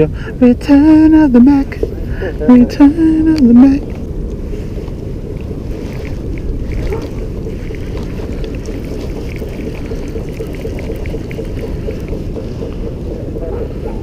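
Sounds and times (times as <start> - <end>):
wind buffeting microphone: 0.0 - 14.0
fishing reel ticking: 3.7 - 13.6.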